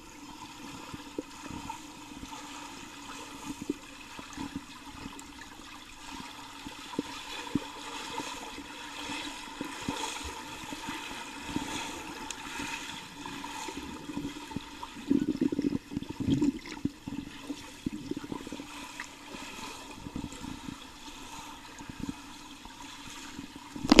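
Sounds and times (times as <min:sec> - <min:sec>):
underwater churning and bubbling: 0:00.0 - 0:24.0
muffled underwater knocks: 0:23.8 - 0:24.0.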